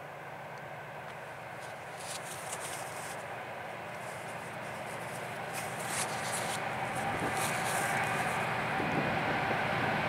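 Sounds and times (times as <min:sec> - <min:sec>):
diesel locomotive engine rumble: 0:00.0 - 0:10.0.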